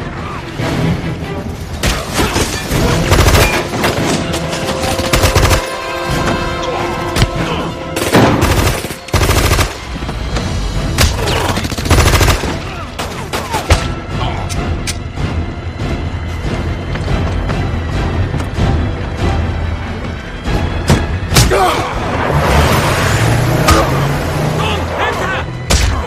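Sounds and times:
background music: 0.0s - 26.0s
gunfire bursts: 11.5s - 12.6s.

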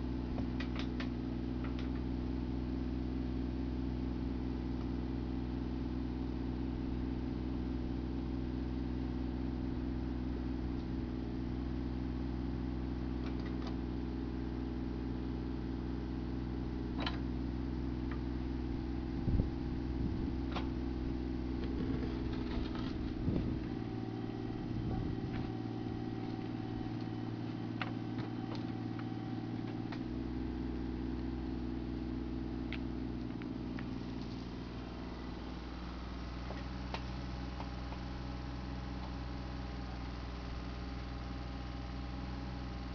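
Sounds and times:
excavator diesel engine running: 0.0s - 42.9s
bucket knocking and scraping stones: 21.6s - 23.6s.

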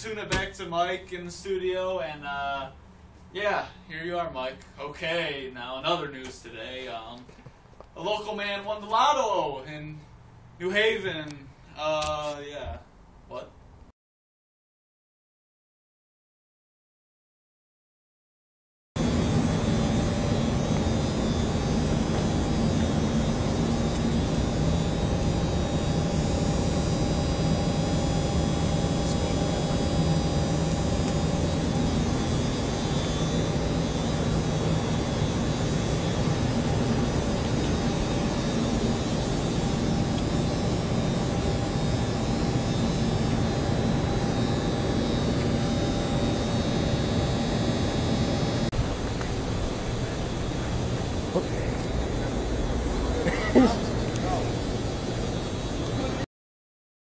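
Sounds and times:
industrial machinery drone: 19.0s - 56.2s.

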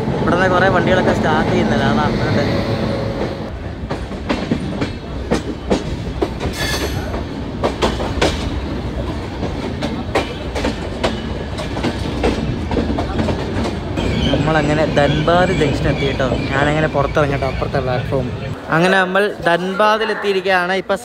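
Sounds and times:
train wheels clickety-clack: 2.7s - 16.4s.

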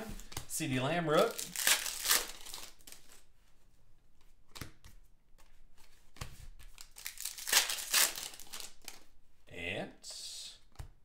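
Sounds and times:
cards and foil wrapper rustling: 1.0s - 3.3s, 6.7s - 9.1s.

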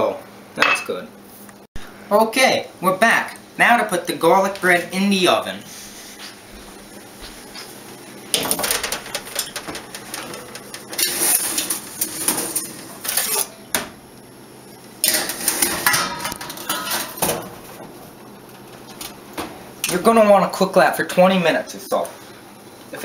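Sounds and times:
baking tray clattering in oven: 8.3s - 13.0s, 15.0s - 20.1s.

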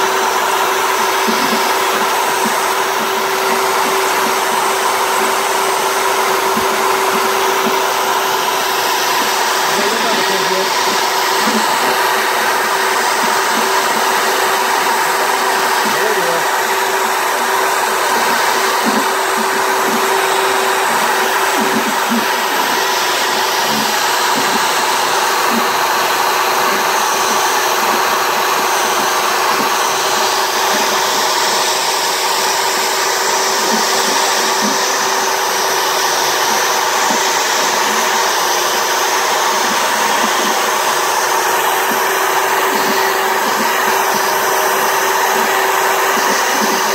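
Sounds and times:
router spindle whine: 0.0s - 46.9s.

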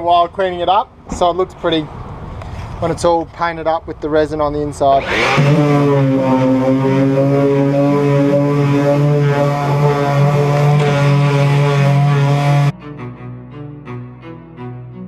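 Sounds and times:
orbit sander motor hum: 5.0s - 12.7s.

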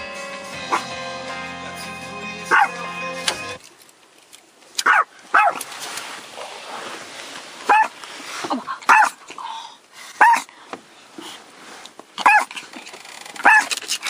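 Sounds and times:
small dog barking: 0.7s - 0.9s, 2.5s - 2.8s, 4.8s - 5.6s, 7.7s - 7.9s, 8.9s - 9.2s, 10.2s - 10.5s, 12.2s - 12.5s, 13.4s - 13.7s.

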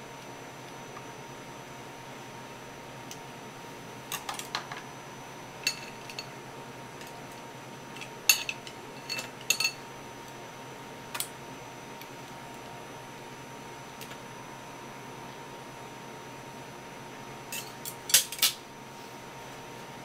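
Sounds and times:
metal chopsticks clinking on plate: 17.5s - 18.6s.

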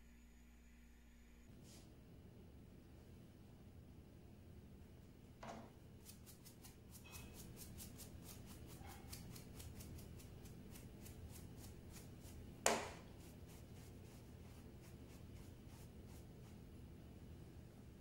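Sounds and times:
bristle brush sweeping: 6.0s - 16.8s
brush knocking on plastic board: 12.6s - 13.1s.

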